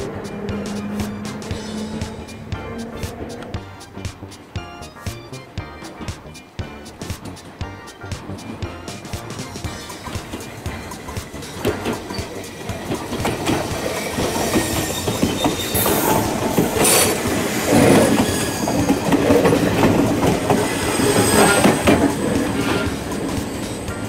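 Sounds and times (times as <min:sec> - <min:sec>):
high metallic wheel squeal: 0:00.0 - 0:03.6, 0:09.7 - 0:24.0
train wheels clattering over joints: 0:00.0 - 0:24.0.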